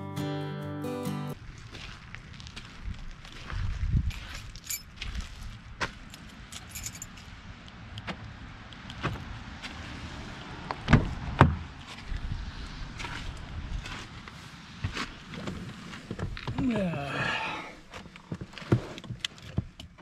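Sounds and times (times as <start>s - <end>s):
keys jingling: 4.1s - 5.1s, 6.1s - 7.3s.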